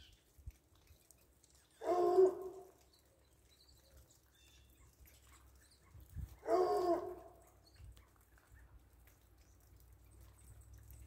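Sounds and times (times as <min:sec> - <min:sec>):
dog barking: 0:06.4 - 0:07.3.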